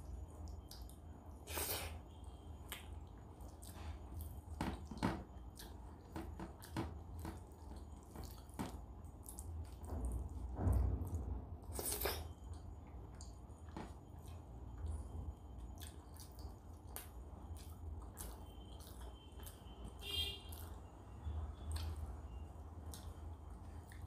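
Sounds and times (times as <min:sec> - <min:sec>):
wet chewing and lip smacks: 0:02.6 - 0:09.9, 0:14.2 - 0:20.9, 0:21.6 - 0:24.0.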